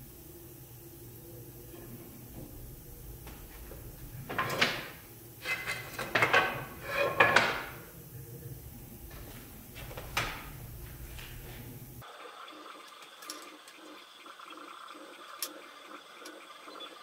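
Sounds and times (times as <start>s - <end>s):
wooden strips scraping together: 4.3s - 7.8s.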